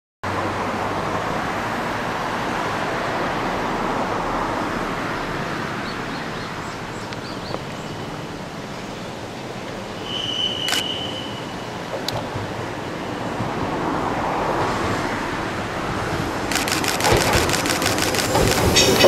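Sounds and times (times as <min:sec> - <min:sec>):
outdoor rushing noise: 0:09.7 - 0:19.0.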